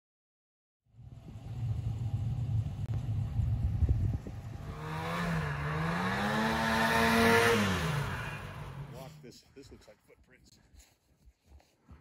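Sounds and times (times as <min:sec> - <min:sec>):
snowmobile engine revving: 0:04.2 - 0:09.3.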